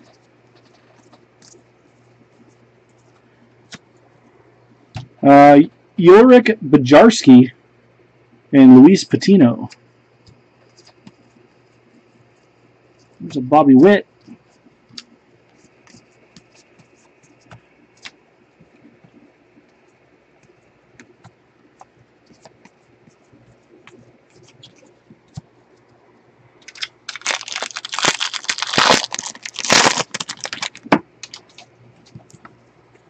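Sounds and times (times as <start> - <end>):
cards crackling and rustling: 0.0 - 2.0, 14.3 - 19.3, 26.6 - 32.6.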